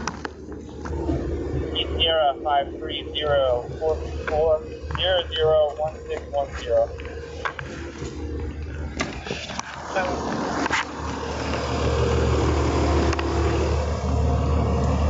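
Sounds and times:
road and vehicle rumble: 0:00.0 - 0:15.0.

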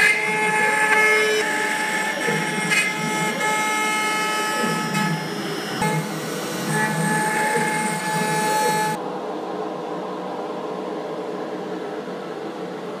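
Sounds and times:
router spindle whine and hiss: 0:00.0 - 0:09.0
steady machine hum: 0:00.0 - 0:13.0.

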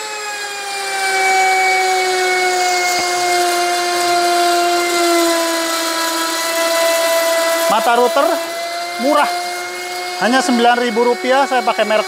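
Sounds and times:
router motor whine cutting wood: 0:00.0 - 0:12.0.

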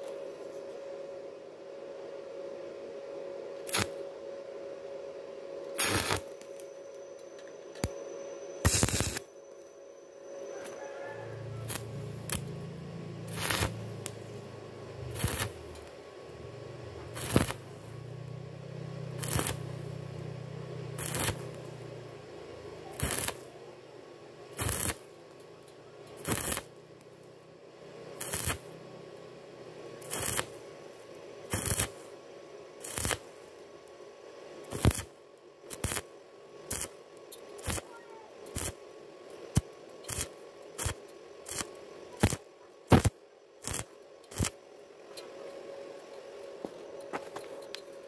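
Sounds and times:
faint steady hum: 0:00.0 - 0:48.0
welding arc bursts: 0:03.7 - 0:04.0, 0:05.8 - 0:06.3, 0:08.6 - 0:09.3, 0:11.4 - 0:15.9, 0:17.0 - 0:18.3, 0:19.0 - 0:22.1, 0:22.9 - 0:23.5, 0:24.5 - 0:25.1, 0:26.2 - 0:26.7, 0:28.1 - 0:28.8, 0:30.0 - 0:30.6, 0:31.5 - 0:32.1, 0:32.8 - 0:33.4, 0:34.7 - 0:35.1, 0:35.7 - 0:36.1, 0:36.7 - 0:37.0, 0:37.6 - 0:38.8, 0:39.5 - 0:44.6.

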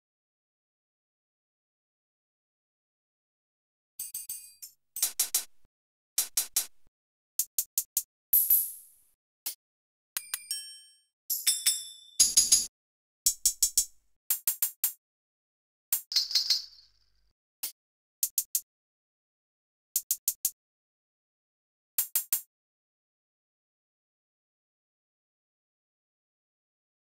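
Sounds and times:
hi-hat ticks: 0:13.3 - 0:14.6, 0:18.2 - 0:18.6, 0:20.0 - 0:20.6, 0:22.0 - 0:22.5.

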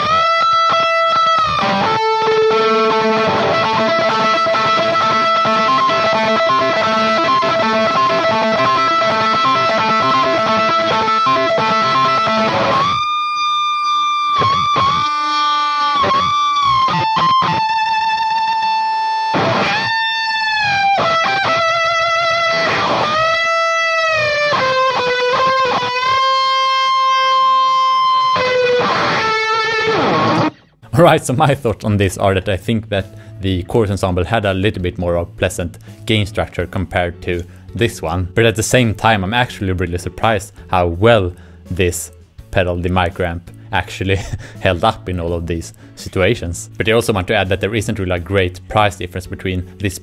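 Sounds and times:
distorted electric guitar lead: 0:00.0 - 0:31.2.

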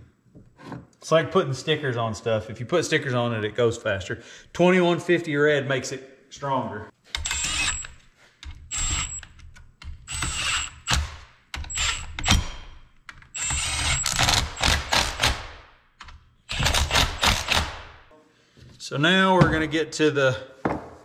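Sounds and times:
impact gun whining and rattling: 0:07.1 - 0:18.1.

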